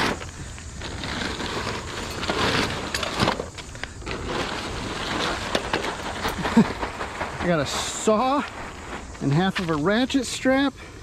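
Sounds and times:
plastic bag rustling and crinkling: 0:00.0 - 0:10.8.

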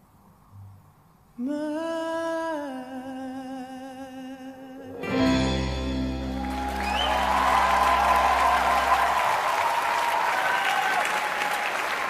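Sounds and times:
closing chord ringing out: 0:05.0 - 0:09.3
audience applauding: 0:06.2 - 0:12.0
person whooping: 0:06.3 - 0:11.8.

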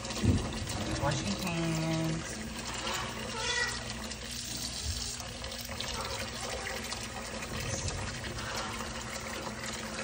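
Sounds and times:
faucet running into sink: 0:00.0 - 0:10.0.

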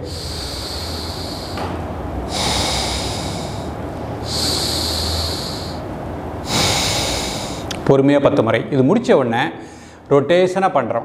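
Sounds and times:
man breathing through nose: 0:00.0 - 0:07.8, 0:09.6 - 0:10.0.

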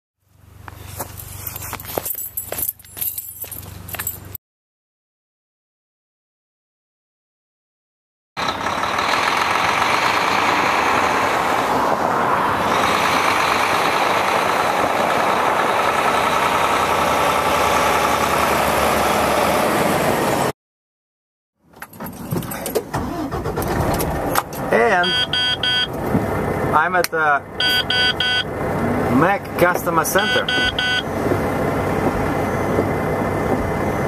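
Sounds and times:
road noise: 0:00.2 - 0:04.4, 0:08.4 - 0:20.6, 0:21.6 - 0:34.0
heavy truck engine: 0:08.4 - 0:20.5, 0:22.0 - 0:34.0.

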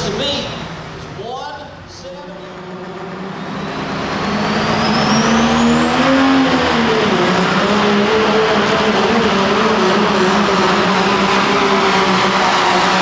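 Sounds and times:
diesel engine drone: 0:00.0 - 0:13.0
turbo whistle: 0:03.3 - 0:13.0.

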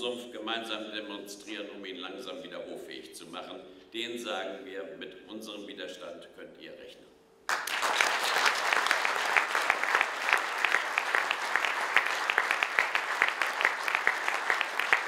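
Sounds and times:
audience applauding: 0:07.5 - 0:15.0
single sharp claps: 0:07.5 - 0:15.0.

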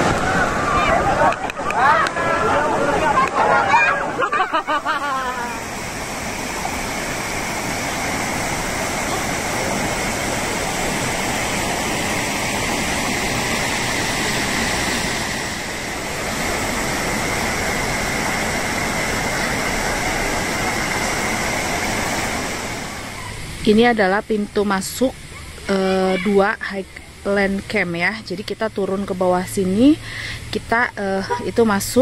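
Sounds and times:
stream babbling over stones: 0:05.3 - 0:23.2.

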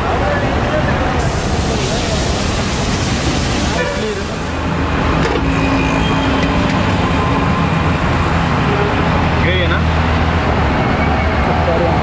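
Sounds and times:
people talking: 0:00.0 - 0:04.6, 0:11.4 - 0:12.0
steady traffic: 0:00.0 - 0:12.0
broad hiss: 0:01.2 - 0:04.7.

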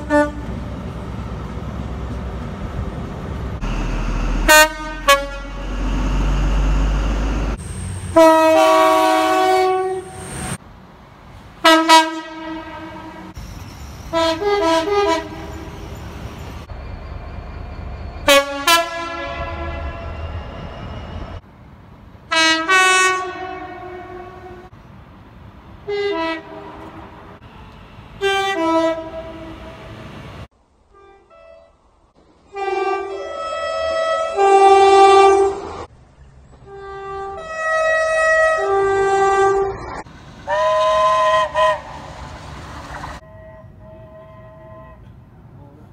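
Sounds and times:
train horn blasts: 0:00.0 - 0:00.5, 0:04.2 - 0:05.9, 0:08.1 - 0:10.5, 0:11.6 - 0:13.4, 0:14.1 - 0:15.8, 0:18.2 - 0:20.9, 0:22.3 - 0:24.7, 0:25.8 - 0:27.6, 0:28.2 - 0:29.9, 0:30.9 - 0:31.8, 0:32.5 - 0:35.8, 0:36.6 - 0:39.8, 0:40.5 - 0:42.0, 0:43.2 - 0:45.9
passing train rumble: 0:00.0 - 0:45.9.

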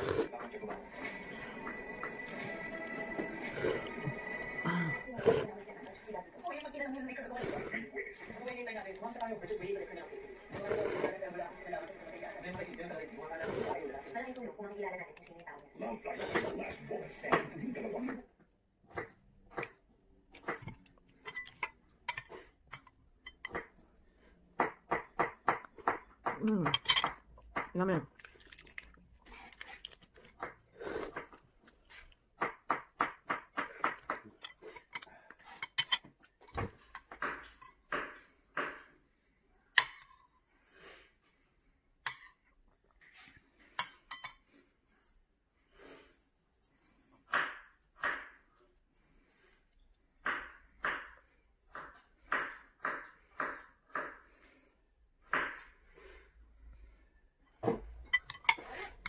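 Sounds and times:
metal spoon clinking on bowl: 0:21.2 - 0:23.6, 0:26.7 - 0:27.2, 0:34.4 - 0:36.1, 0:39.8 - 0:40.2, 0:42.1 - 0:42.4, 0:43.8 - 0:44.4
eggshell cracking: 0:24.6 - 0:30.6
metal spoon tapping eggshell: 0:39.8 - 0:40.1.

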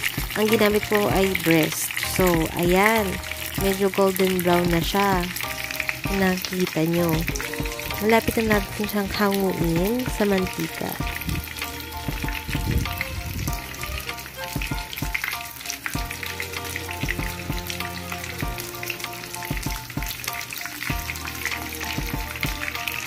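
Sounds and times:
background music: 0:00.0 - 0:23.0
chicken sizzling in oil: 0:00.0 - 0:23.0.

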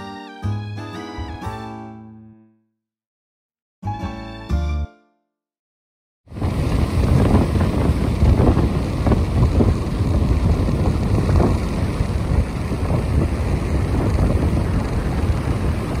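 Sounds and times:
wind buffeting microphone: 0:06.3 - 0:16.0.

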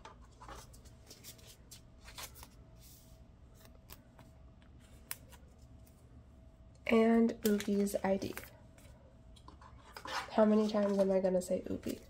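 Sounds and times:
photocard rustling in plastic pocket: 0:00.3 - 0:02.7.

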